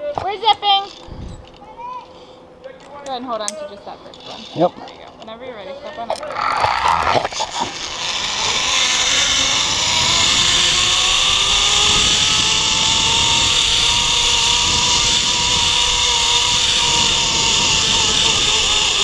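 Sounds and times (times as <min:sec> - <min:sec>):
zipline pulleys whirring: 0:00.7 - 0:01.7, 0:06.1 - 0:19.0
wind buffeting microphone: 0:01.0 - 0:01.5, 0:07.7 - 0:19.0.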